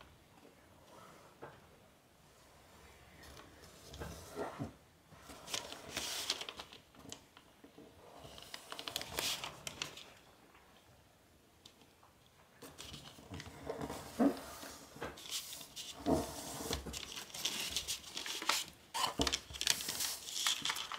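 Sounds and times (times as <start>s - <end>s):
paper rustling and crackling: 5.3s - 7.5s, 8.2s - 10.3s, 12.6s - 20.9s.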